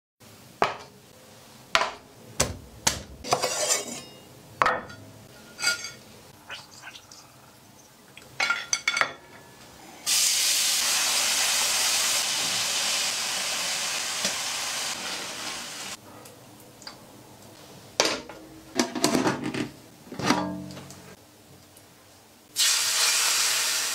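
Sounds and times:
kitchen clicks and knocks: 0:01.8 - 0:06.0, 0:08.3 - 0:09.4, 0:18.0 - 0:21.0
garlic sizzling in oil: 0:10.0 - 0:16.0, 0:22.6 - 0:23.9.

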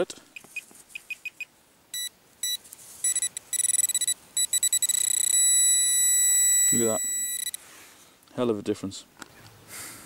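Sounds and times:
pinpointer probe beeping: 0:00.4 - 0:07.6.

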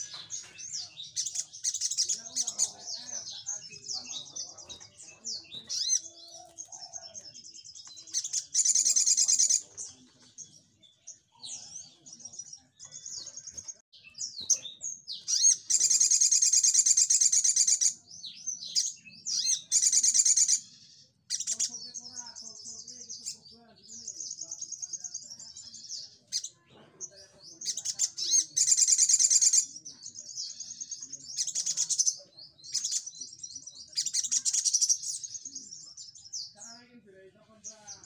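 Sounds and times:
sunbird chirping and twittering: 0:00.0 - 0:38.0
buzzy bird trilling: 0:05.4 - 0:07.2, 0:08.1 - 0:09.6, 0:15.2 - 0:18.0.

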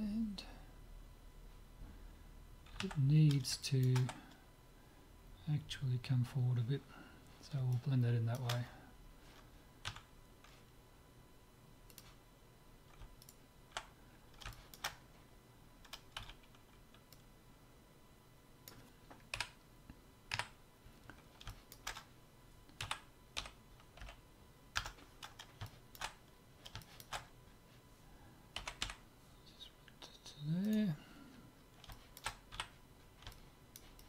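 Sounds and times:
keyboard keys clicking: 0:02.7 - 0:04.2.

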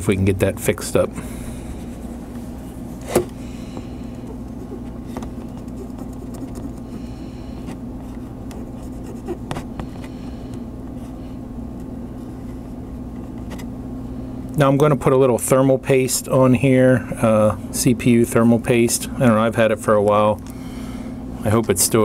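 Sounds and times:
low hum: 0:00.0 - 0:14.9
cotton swab scrubbing: 0:04.4 - 0:07.0.

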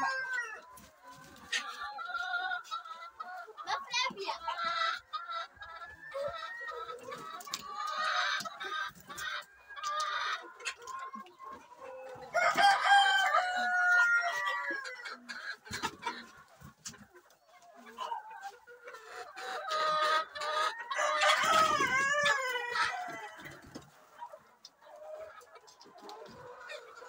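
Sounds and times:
roosters crowing: 0:00.0 - 0:00.7, 0:12.1 - 0:15.3, 0:19.6 - 0:23.8
chickens clucking: 0:00.0 - 0:27.0.

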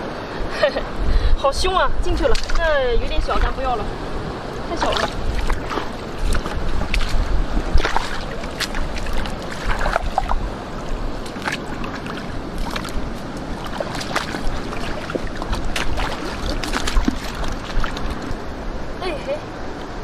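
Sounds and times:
boots wading through shallow water: 0:02.0 - 0:18.6.

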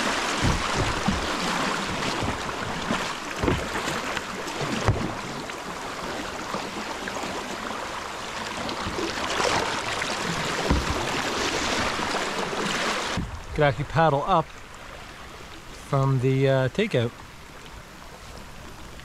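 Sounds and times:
kayak paddle splashing: 0:00.0 - 0:13.6, 0:14.4 - 0:15.9
river water rushing: 0:00.0 - 0:13.6
sharp knocks: 0:00.3 - 0:02.4, 0:03.4 - 0:03.8, 0:10.6 - 0:11.1.

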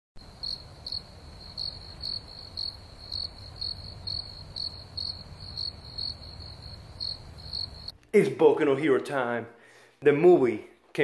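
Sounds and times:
cricket chirping: 0:00.2 - 0:07.9.

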